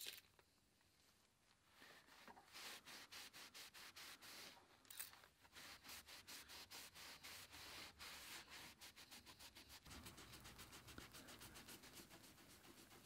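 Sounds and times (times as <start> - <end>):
scrubbing pad on metal: 5.5 - 13.0.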